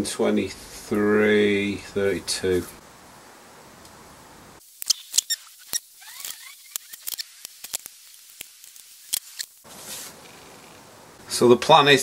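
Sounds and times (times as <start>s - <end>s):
pencil squeaking: 4.9s - 7.4s.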